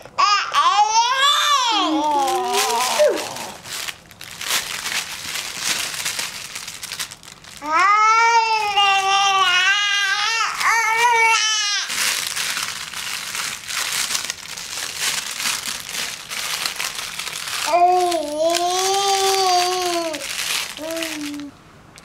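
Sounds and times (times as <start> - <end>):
young child's high voice: 0.2 - 3.6, 17.6 - 21.5
crinkle toy crackling: 1.2 - 22.0.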